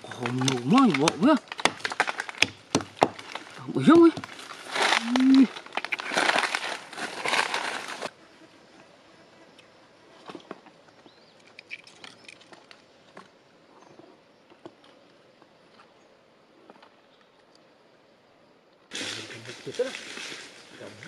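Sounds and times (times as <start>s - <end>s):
machete crunching wood: 0.2s - 8.0s
person grunting: 5.0s - 5.5s.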